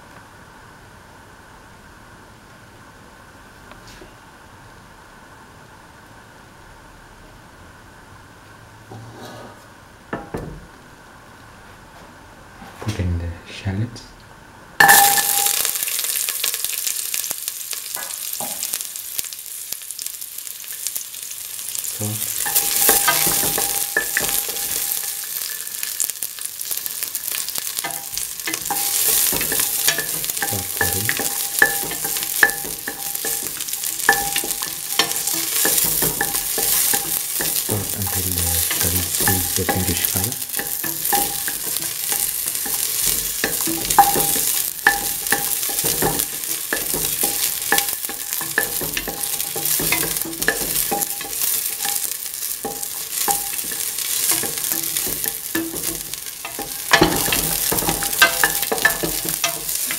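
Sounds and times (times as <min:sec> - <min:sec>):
shallots sizzling in hot oil: 0:14.8 - 0:59.9.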